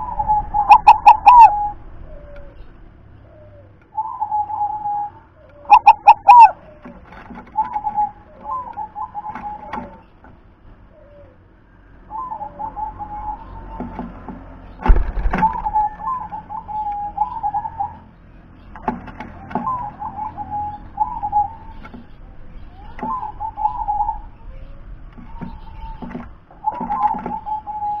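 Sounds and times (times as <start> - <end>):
dove cooing: 0.0 - 28.0
loud thump: 14.8 - 15.6.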